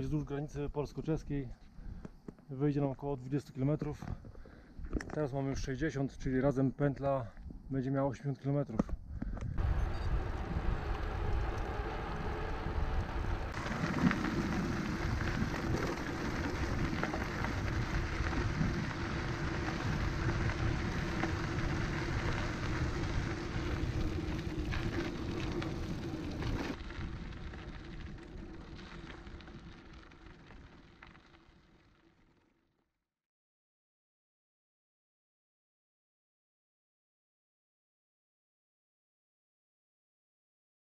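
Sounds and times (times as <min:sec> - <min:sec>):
wind buffeting microphone: 0:09.0 - 0:28.8
bike tyres rolling on gravel: 0:09.2 - 0:32.6.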